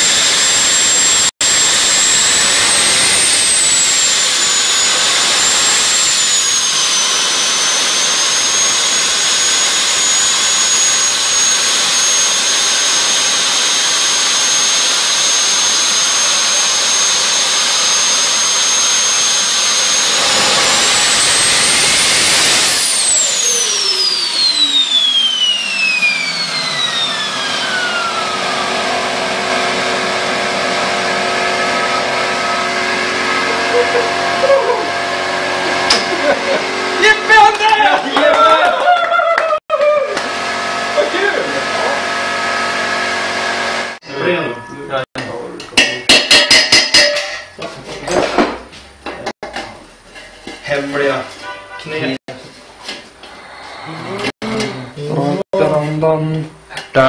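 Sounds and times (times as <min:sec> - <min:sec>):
gas turbine engine whine: 0:00.0 - 0:37.4.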